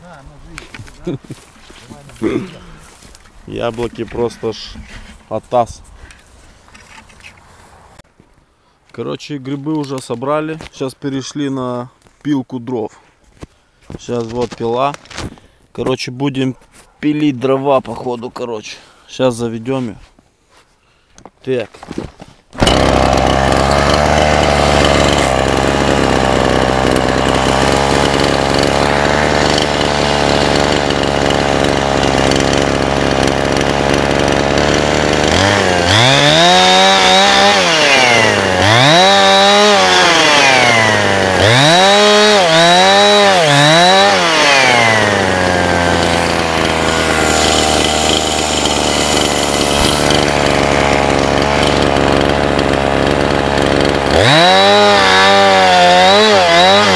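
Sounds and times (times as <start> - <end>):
chainsaw idling: 22.6 - 56.9
chainsaw revving: 22.6 - 56.9.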